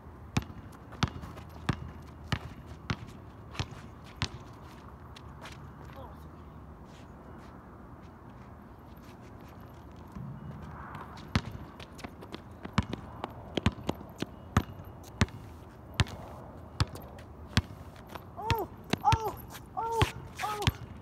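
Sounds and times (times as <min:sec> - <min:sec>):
basketball bouncing on asphalt: 0:00.3 - 0:05.8, 0:10.0 - 0:21.0.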